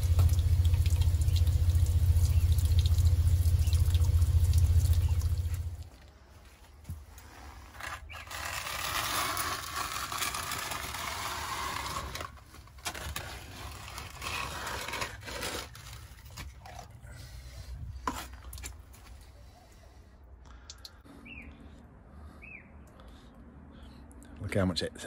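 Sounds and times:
plastic dustpan scraping concrete: 7.2 - 16.8.

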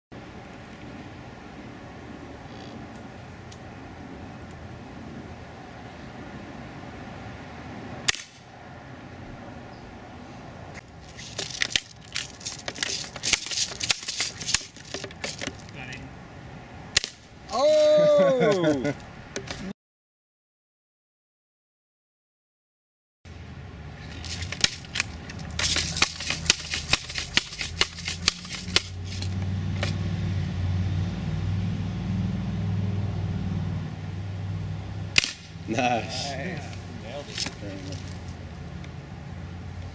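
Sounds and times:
dry crackling clicks: 10.8 - 15.8, 24.1 - 30.0.

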